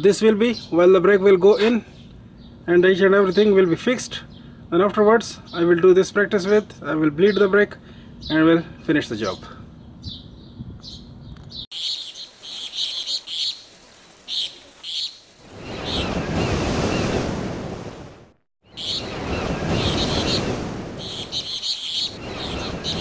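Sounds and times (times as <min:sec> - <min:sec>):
birds chirping: 0:00.0 - 0:17.4, 0:18.6 - 0:23.0
surf washing: 0:12.2 - 0:23.0.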